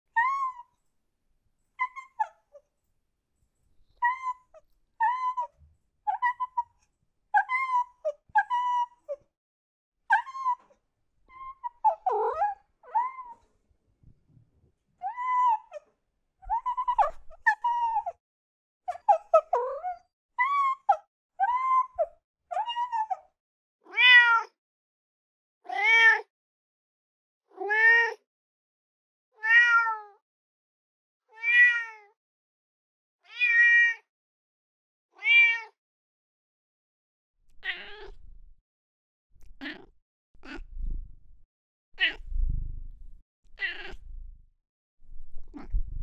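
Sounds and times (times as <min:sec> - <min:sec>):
cat meowing: 0:23.9 - 0:24.6, 0:33.3 - 0:34.1, 0:35.2 - 0:35.8, 0:37.6 - 0:38.2, 0:39.4 - 0:41.0, 0:42.0 - 0:42.8, 0:43.6 - 0:44.3, 0:45.4 - 0:45.8.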